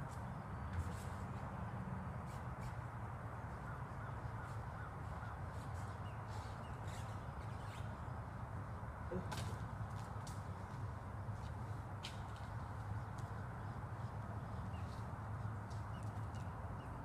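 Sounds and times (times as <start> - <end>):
distant birds calling: 3.4 - 9.3.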